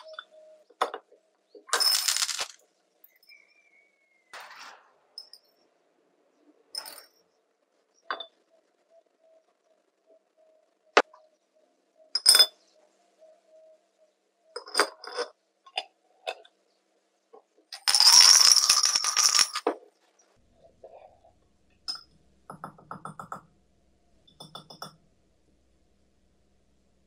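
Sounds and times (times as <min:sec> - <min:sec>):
parts rattling in a jar: 0:01.7 - 0:02.6, 0:17.8 - 0:19.8
metal parts clinking against glass: 0:01.7 - 0:03.4, 0:14.6 - 0:16.4, 0:17.8 - 0:19.7.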